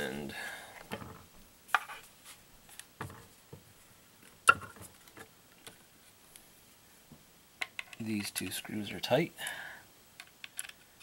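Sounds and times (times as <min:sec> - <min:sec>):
plastic toy truck clicks and knocks: 0:10.2 - 0:10.8.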